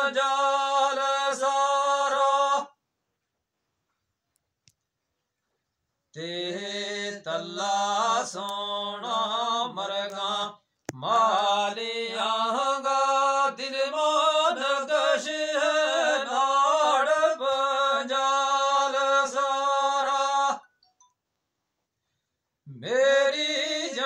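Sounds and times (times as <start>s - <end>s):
man chanting: 22.7s - 24.0s.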